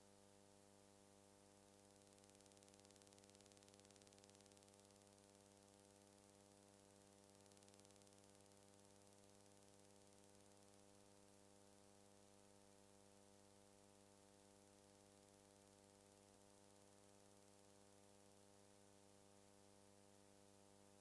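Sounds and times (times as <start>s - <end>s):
faint electrical hum with hiss: 0.0s - 21.0s.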